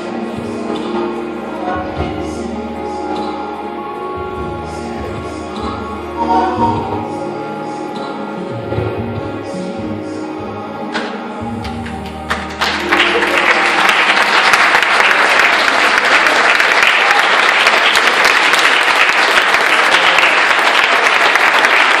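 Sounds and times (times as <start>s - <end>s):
held music notes: 0.0s - 15.7s
congregation applauding: 11.8s - 22.0s.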